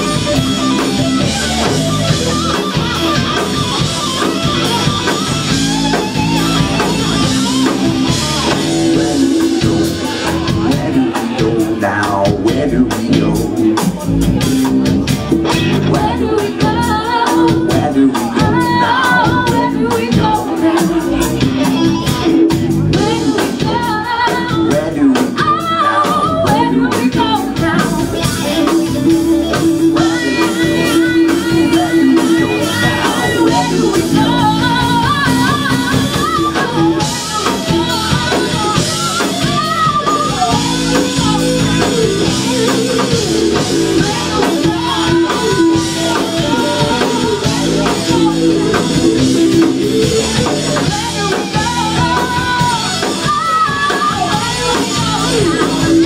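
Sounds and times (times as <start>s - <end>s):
live rock band playing: 0.0s - 56.0s
woman singing lead: 0.0s - 56.0s.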